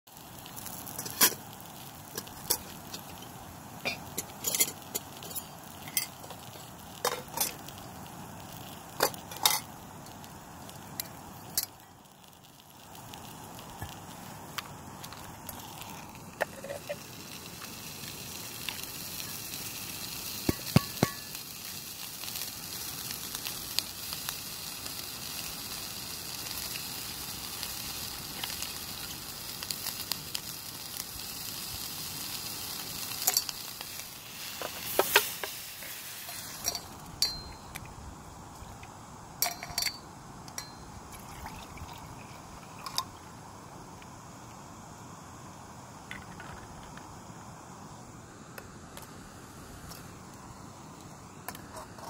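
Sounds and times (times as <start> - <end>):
sausages sizzling in a frying pan: 0.1 - 52.0
sharp metal clinks: 36.6 - 37.8.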